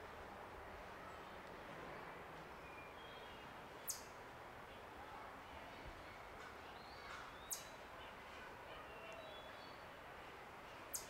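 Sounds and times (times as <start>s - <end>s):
distant songbirds singing: 6.7s - 7.8s.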